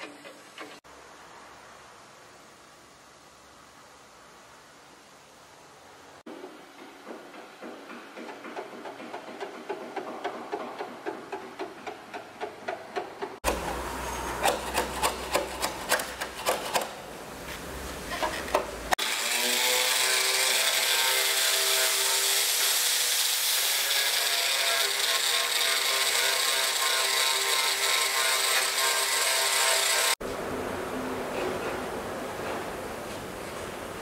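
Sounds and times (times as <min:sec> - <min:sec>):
hand tool rasping: 0:14.4 - 0:16.9.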